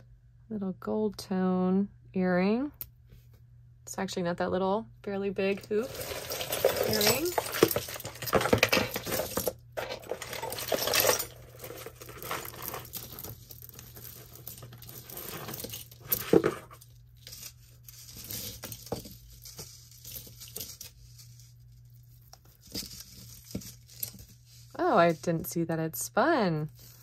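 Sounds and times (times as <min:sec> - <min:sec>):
jewelry clinking and rattling: 0:05.5 - 0:21.4.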